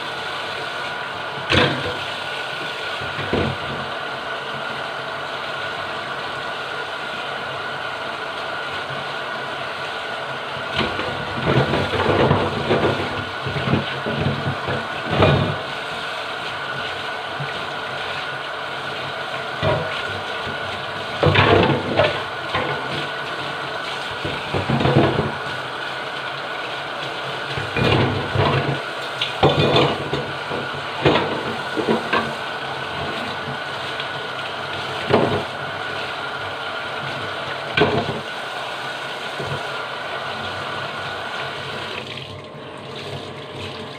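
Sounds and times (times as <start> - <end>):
faucet running into steel sink: 0.0 - 3.9, 4.6 - 43.9
knocks and scrapes against sink: 10.8 - 15.6, 19.6 - 23.1, 24.2 - 25.4, 27.5 - 28.8, 29.4 - 32.4, 35.0 - 35.5, 37.8 - 38.3.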